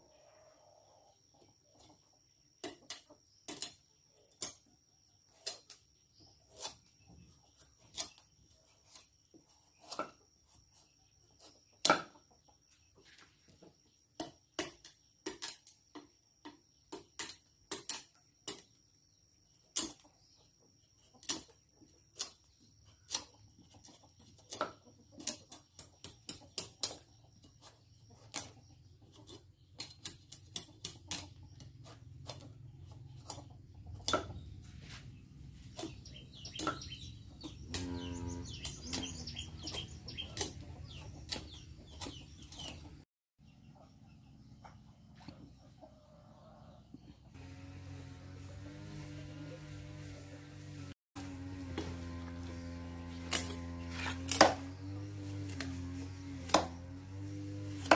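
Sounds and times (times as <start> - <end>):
cleaver chopping squash: 5.3 - 10.8, 11.4 - 12.2, 14.1 - 18.8, 19.7 - 20.0, 21.2 - 43.0, 47.3 - 57.9.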